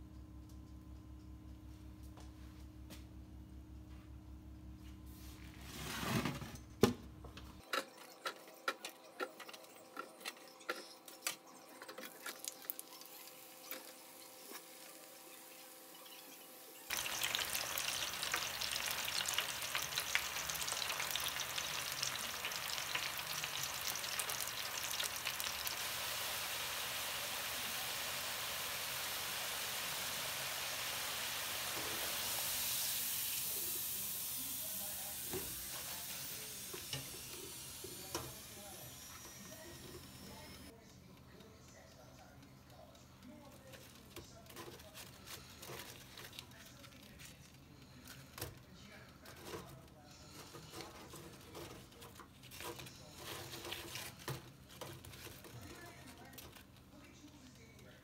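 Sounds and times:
fries sizzling in hot oil: 12.1 - 39.6.

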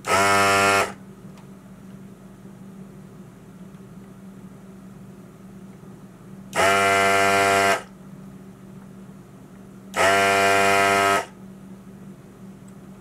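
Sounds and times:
desoldering gun vacuum pump buzzing: 0.0 - 1.0, 6.5 - 7.9, 9.9 - 11.4.

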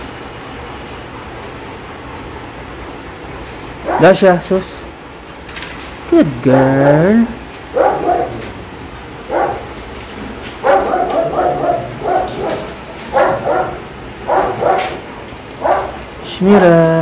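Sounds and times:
dog barking: 3.8 - 4.2, 7.7 - 8.6, 9.2 - 9.9, 10.6 - 16.1.

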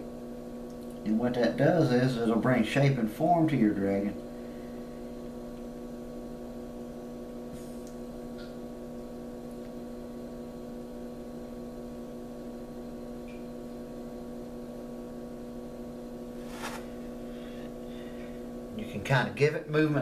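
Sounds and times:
electrical mains hum: 0.0 - 20.0
soft rustle: 16.4 - 17.0.

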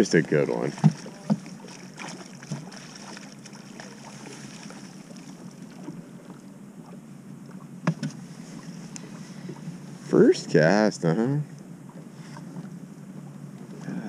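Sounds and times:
water lapping around boat: 0.0 - 14.0
wind: 0.0 - 14.0
knocks on boat: 0.7 - 2.9, 7.8 - 8.2.

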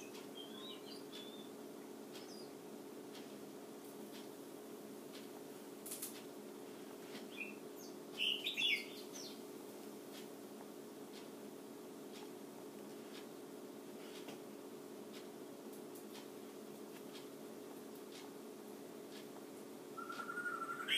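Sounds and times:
steady low hum: 0.0 - 20.9
bird high squeaky chirps: 0.4 - 1.5, 8.2 - 9.3, 20.0 - 20.9.

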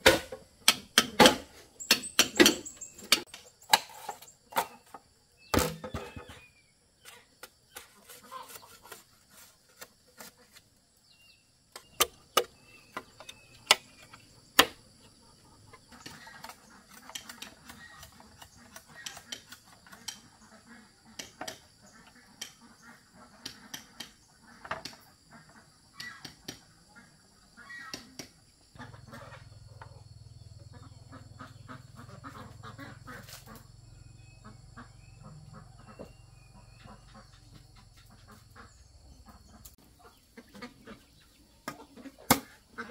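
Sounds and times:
chickens clucking: 0.0 - 42.9.

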